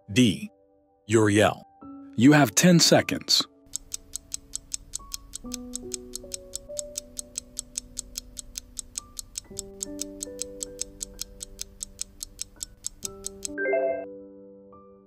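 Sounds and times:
soft background music: 0.0 - 15.0
clock ticking fast: 3.7 - 13.6.

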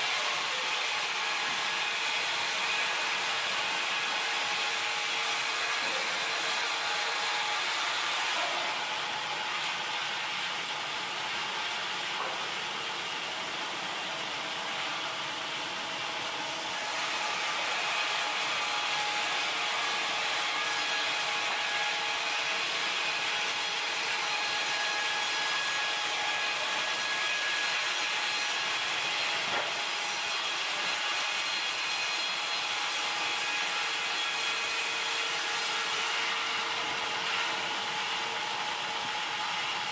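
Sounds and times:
band saw cutting logs: 0.0 - 39.9.

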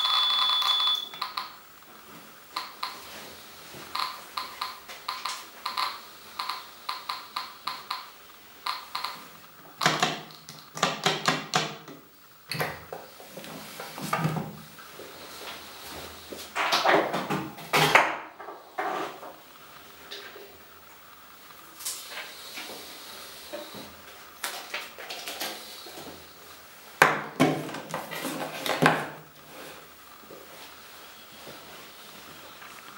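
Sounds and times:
geiger counter ticking: 0.0 - 1.6, 2.5 - 3.1, 3.9 - 10.0.

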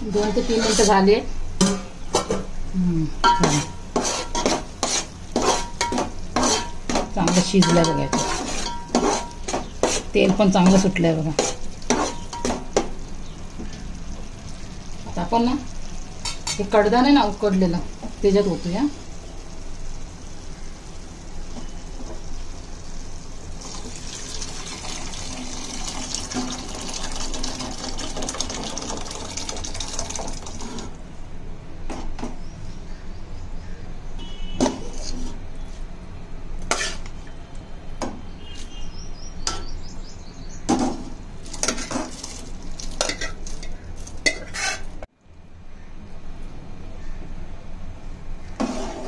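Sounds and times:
metal utensils clinking on pot: 3.2 - 4.6, 5.4 - 12.6, 43.0 - 44.9
liquid pouring into a pot: 22.9 - 31.0, 41.4 - 44.2.

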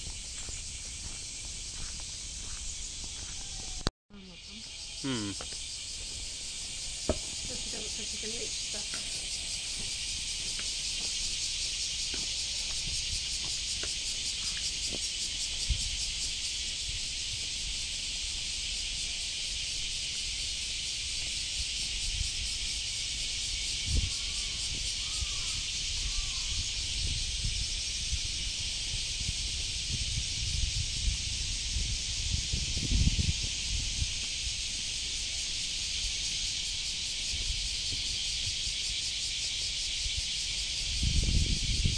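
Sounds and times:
high-pitched insect chorus: 0.0 - 41.9
faint chirps: 1.7 - 6.0.

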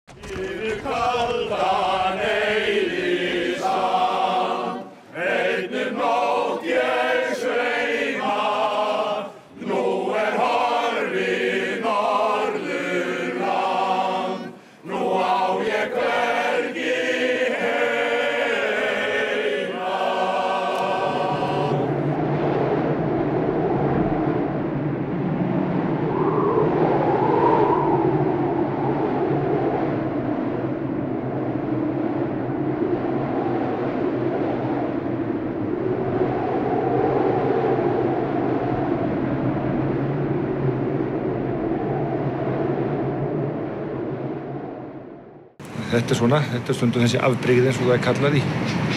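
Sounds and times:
blizzard wind on microphone: 0.0 - 48.9
group singing in harmony: 0.1 - 22.3.

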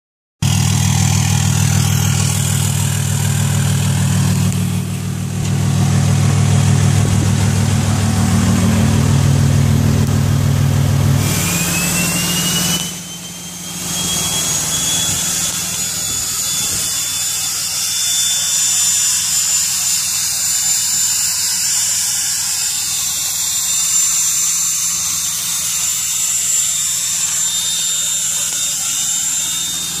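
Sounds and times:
diesel engine idling: 0.4 - 15.9
turbo whistle: 11.0 - 30.0
exhaust brake hiss: 11.2 - 15.3.

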